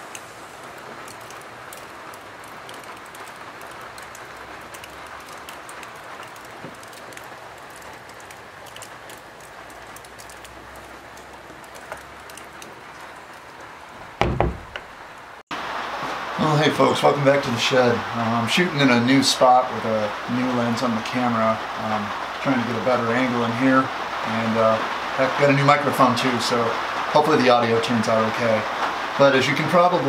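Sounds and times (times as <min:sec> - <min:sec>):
steady rain falling: 0:00.0 - 0:30.0
wooden door shutting: 0:14.2 - 0:15.0.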